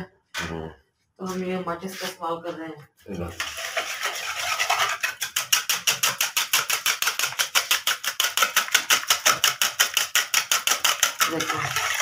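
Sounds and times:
whisk beating batter in bowl: 3.4s - 12.0s.

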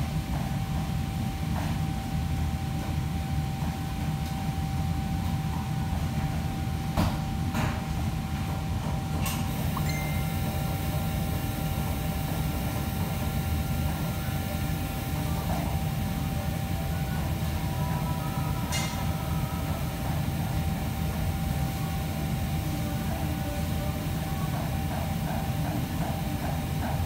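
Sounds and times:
thin steady whine: 8.2s - 27.0s.

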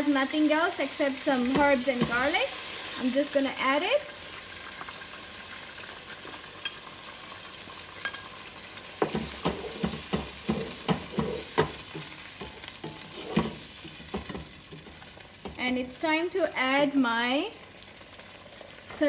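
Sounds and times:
food sizzling in a frying pan: 0.0s - 19.0s
spatula knocking and scraping pan: 1.4s - 2.4s, 9.0s - 15.6s.

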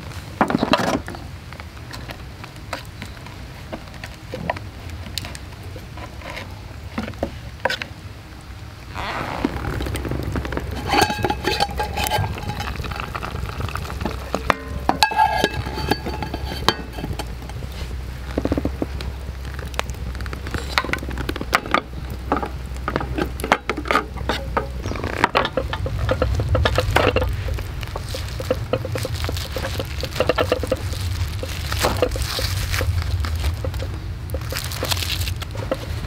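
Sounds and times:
campfire crackling and popping: 0.0s - 36.0s
pot sizzling and sputtering: 2.3s - 36.0s.

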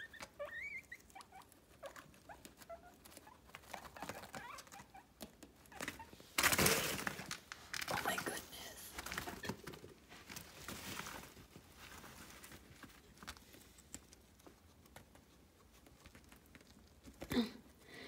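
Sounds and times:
guinea pig chirps: 0.0s - 6.2s
guinea pigs squeaking: 0.0s - 8.2s
rustling scuffle: 9.0s - 13.8s.

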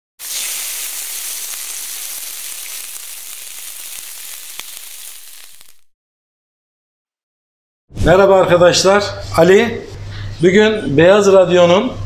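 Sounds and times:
meat sizzling in a pan: 0.2s - 5.9s.

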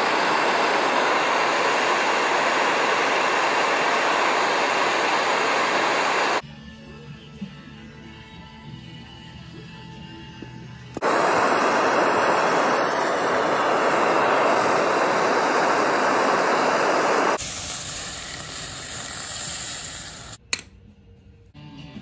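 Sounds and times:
loud steady hiss: 0.0s - 6.4s, 11.0s - 20.4s.

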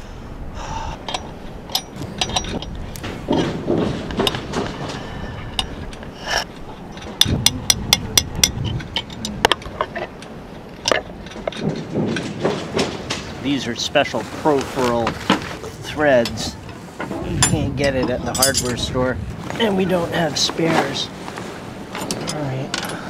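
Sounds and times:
spanner clinking on metal fitting: 1.1s - 2.8s, 17.4s - 18.8s.

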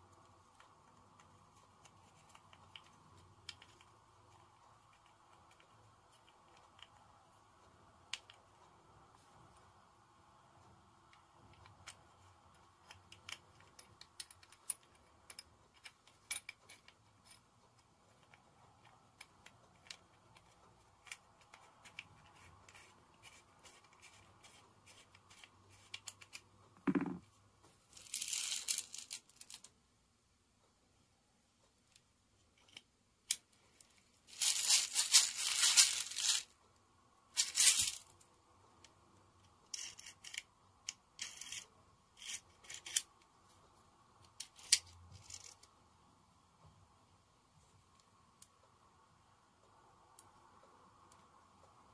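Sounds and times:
metal and plastic parts clicking: 44.2s - 45.7s.

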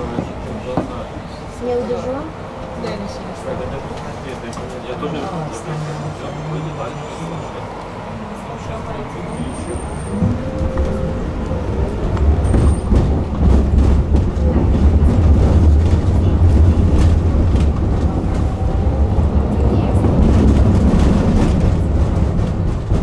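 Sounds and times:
tram wheels rumbling on track: 0.0s - 23.0s.

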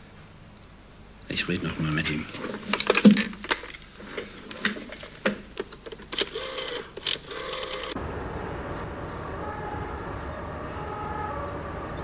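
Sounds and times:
steady low rumble: 8.0s - 12.0s.

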